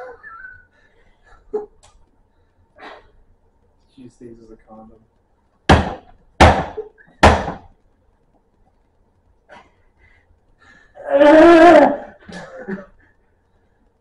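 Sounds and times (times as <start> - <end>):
man straining cry: 11.0 - 12.2.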